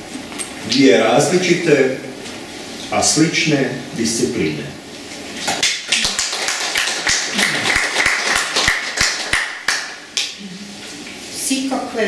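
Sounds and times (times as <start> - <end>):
small audience clapping: 5.4 - 10.4.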